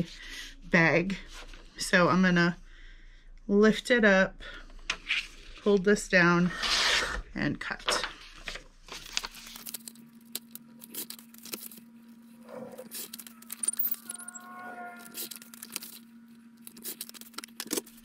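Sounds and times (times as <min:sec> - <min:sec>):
paper rustling: 0:08.4 - 0:11.8.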